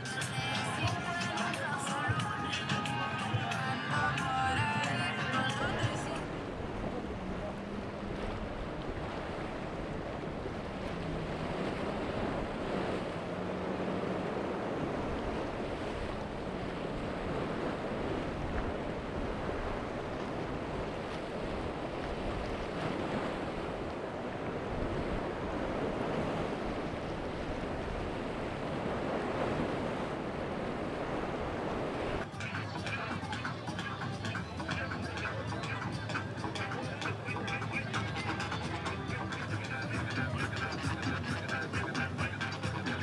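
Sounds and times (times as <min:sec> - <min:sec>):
shallow water lapping: 0:00.0 - 0:43.0
low wavering engine hum: 0:02.5 - 0:20.9.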